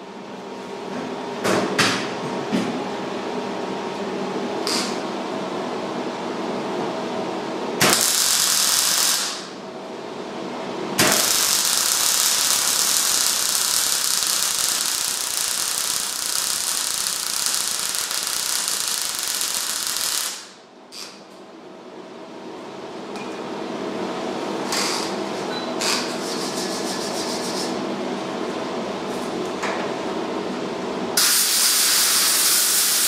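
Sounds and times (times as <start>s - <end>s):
welder arc crackling and hissing: 7.8s - 9.5s, 11.0s - 21.2s, 31.2s - 33.0s.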